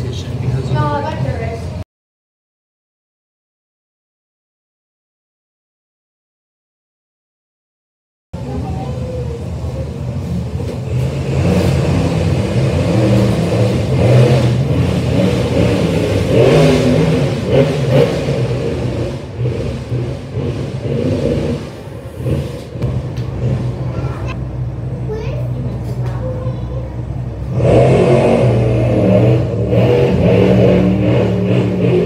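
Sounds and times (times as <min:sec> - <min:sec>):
monster truck engines revving: 0:00.0 - 0:01.8, 0:08.4 - 0:32.0.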